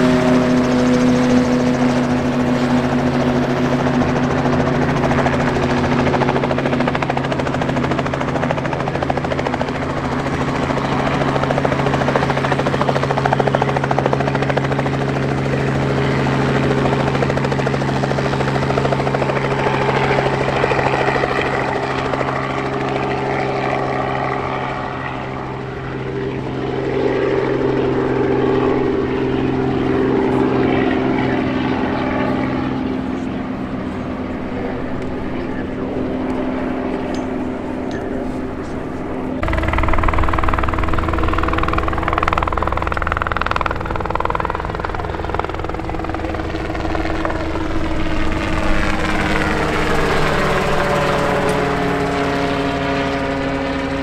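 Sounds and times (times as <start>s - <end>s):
helicopter engine and rotor drone: 0.0s - 54.0s.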